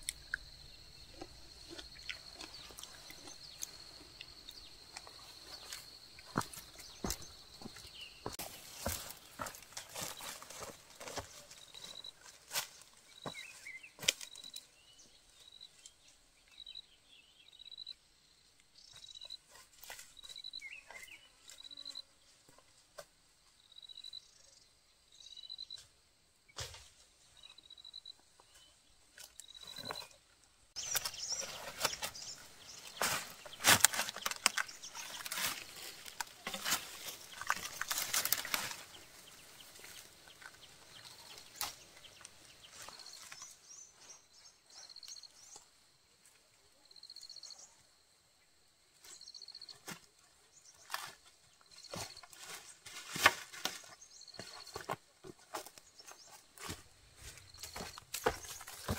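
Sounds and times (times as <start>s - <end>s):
leaves and stems crackling: 1.1s - 14.6s, 30.8s - 43.6s
footsteps in dry leaves: 6.4s - 13.8s, 30.8s - 41.9s.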